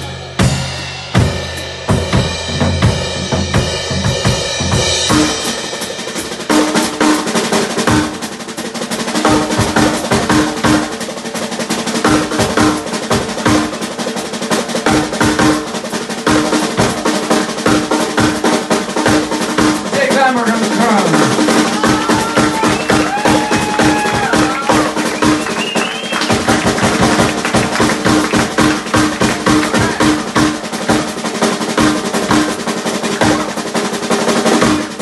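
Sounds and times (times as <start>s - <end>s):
drum kit: 0.0s - 35.0s
live band playing: 0.0s - 35.0s.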